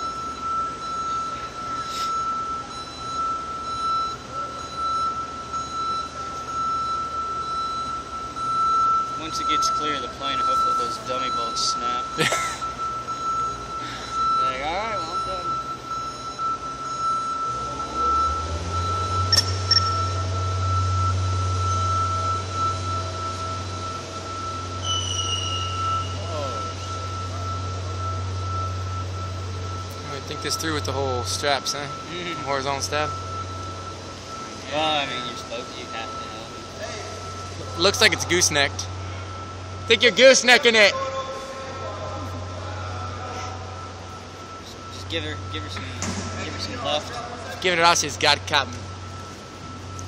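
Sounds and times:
crane hoist motor humming: 0.0 - 50.0
steady whining tone: 0.0 - 50.0
rushing machinery noise: 5.5 - 50.0
sharp metallic clinks: 19.3 - 20.2.

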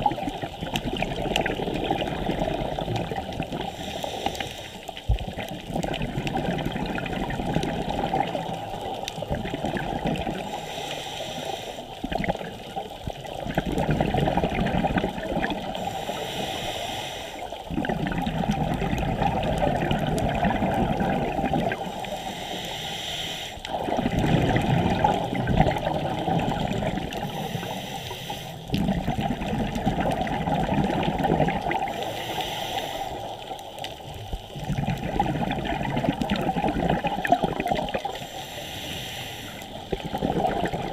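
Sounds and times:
bubbling exhaled air: 0.0 - 23.0, 23.6 - 40.9
regulator inhalation hiss: 3.7 - 5.0, 10.4 - 12.0, 15.8 - 17.6, 21.9 - 23.7, 27.2 - 28.7, 31.9 - 33.5, 38.1 - 39.9.

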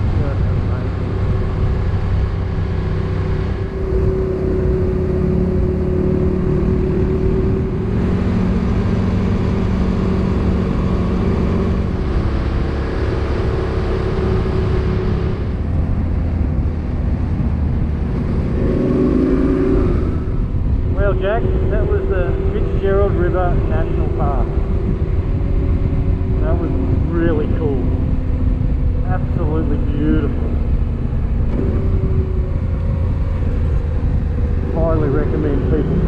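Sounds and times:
motorcycle engine running: 0.0 - 36.0
wind and road noise: 0.0 - 36.0.

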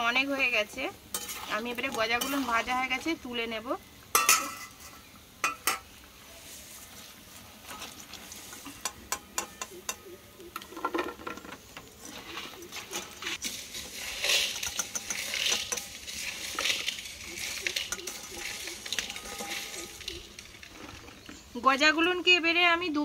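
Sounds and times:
oil sizzling: 0.0 - 22.6
skimmer scraping a frying pan: 1.1 - 3.2, 10.8 - 21.5.

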